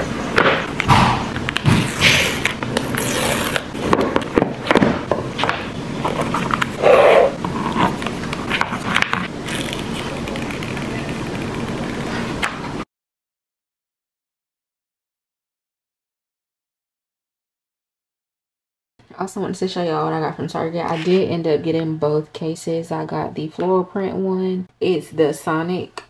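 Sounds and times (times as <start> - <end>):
paper strip tearing: 1.8 - 3.7, 8.8 - 12.2
film peeling from screen: 9.4 - 12.4.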